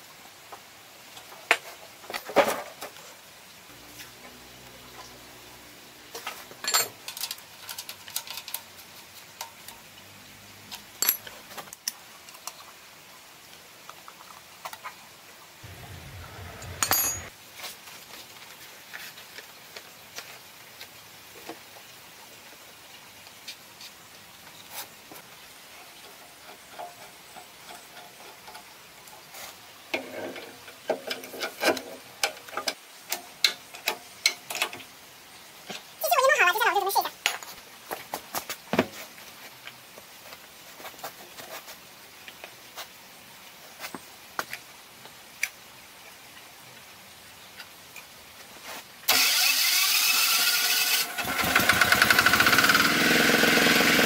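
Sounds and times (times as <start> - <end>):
metal tools clicking and clinking: 6.2 - 8.7, 10.7 - 11.4, 15.8 - 17.3.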